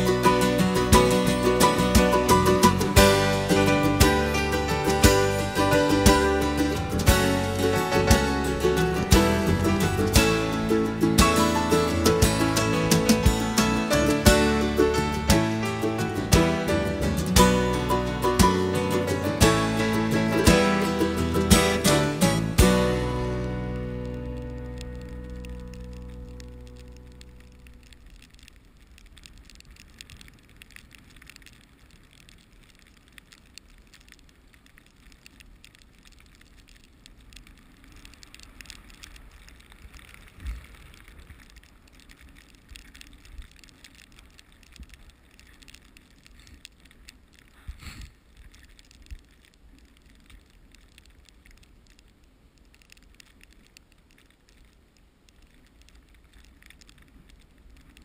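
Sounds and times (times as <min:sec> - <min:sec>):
low rumble: 0:00.0 - 0:31.0.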